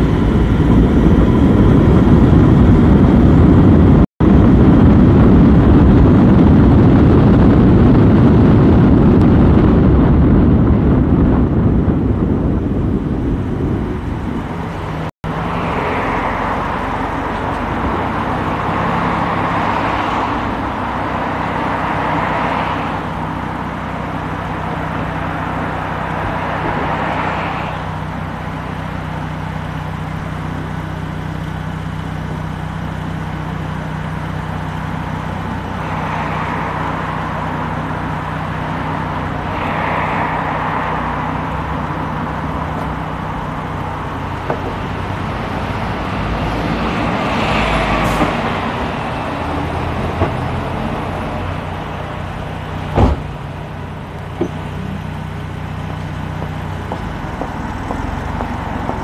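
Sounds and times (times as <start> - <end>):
car engine hum: 0.0 - 59.0
passing vehicles: 0.0 - 59.0
sharp knock: 52.9 - 53.3.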